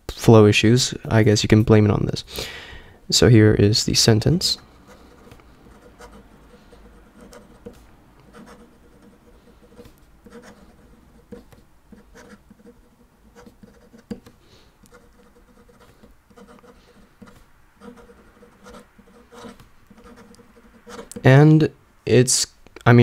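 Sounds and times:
pen nib scratching on paper: 4.8 - 21.2.

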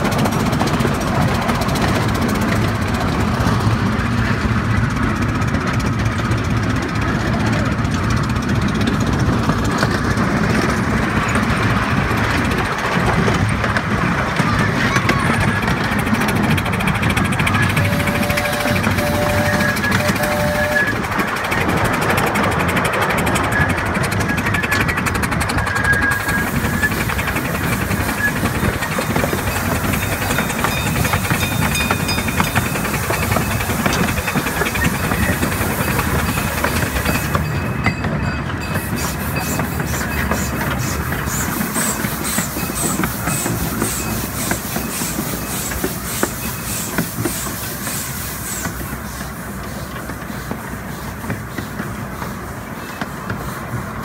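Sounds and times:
steam train rumble: 0.0 - 54.0
wheels clicking over rails: 0.0 - 54.0
steam hiss: 25.7 - 37.7, 38.7 - 54.0.

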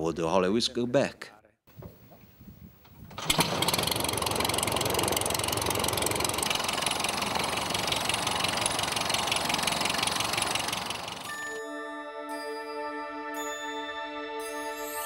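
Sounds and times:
biplane engine starting and idling: 1.8 - 11.4.

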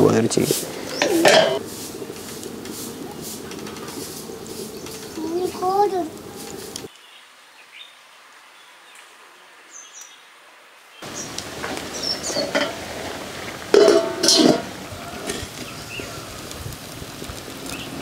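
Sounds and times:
wood-fire kitchen background: 0.0 - 7.0, 11.0 - 18.0
birds chirping: 0.0 - 8.0, 11.0 - 16.5, 17.6 - 18.0
pot lid clanking against steel bowl: 1.0 - 1.6, 12.3 - 12.8, 13.7 - 15.4.

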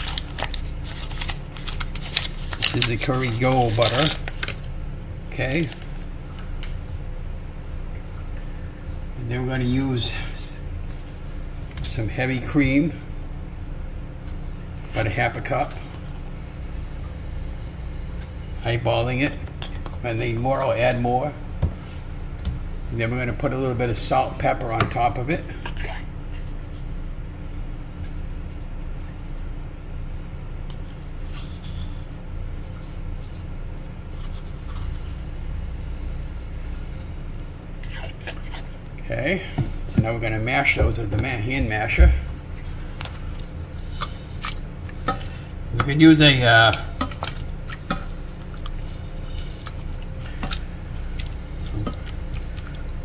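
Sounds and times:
masher squishing vegetables: 0.0 - 6.9, 23.9 - 28.6, 30.0 - 53.0
low kitchen hum: 0.0 - 53.0.

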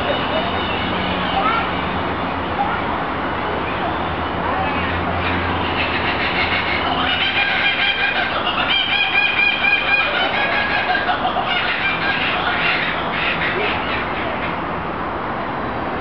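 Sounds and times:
kookaburra laughing call: 5.2 - 14.6.

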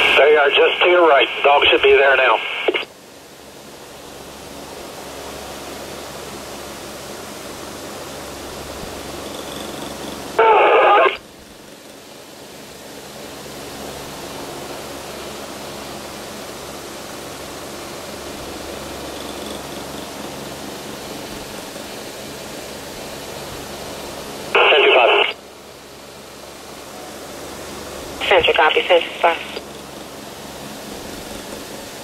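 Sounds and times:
radio scanner transmission burst: 0.0 - 2.9, 10.4 - 11.2, 24.6 - 25.4, 28.2 - 29.7.

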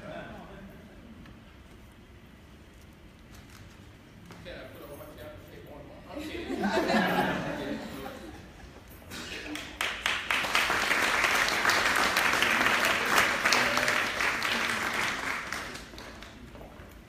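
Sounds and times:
audience applauding: 9.4 - 16.6.

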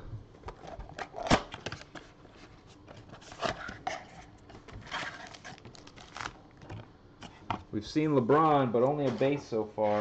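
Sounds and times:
cardboard and wrappers rustling: 0.6 - 7.6.

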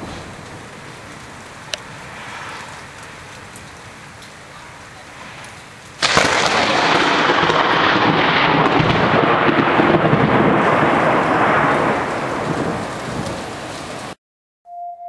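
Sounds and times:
loud roll of thunder: 0.0 - 1.2, 5.1 - 14.2
rain: 0.0 - 14.2.

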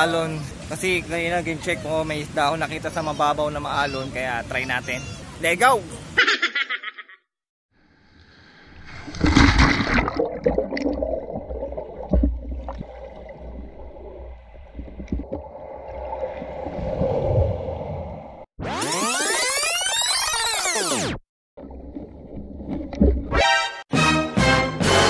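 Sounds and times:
underwater water gurgling: 8.7 - 18.5.

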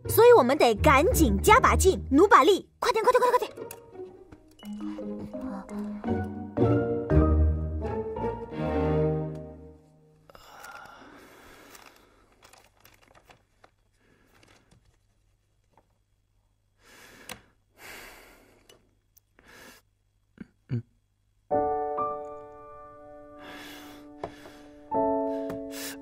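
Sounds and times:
piano chords: 4.6 - 9.8, 21.5 - 26.0.

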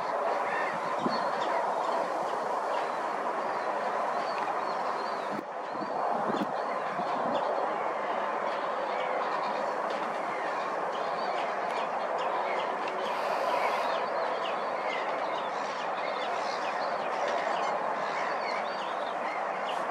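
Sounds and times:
birds chirping and calling: 9.4 - 19.9.

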